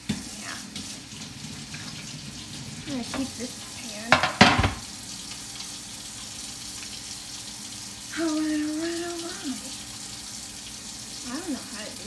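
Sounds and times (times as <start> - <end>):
meatballs sizzling in skillet: 0.0 - 12.0
sharp knocks: 4.1 - 4.8.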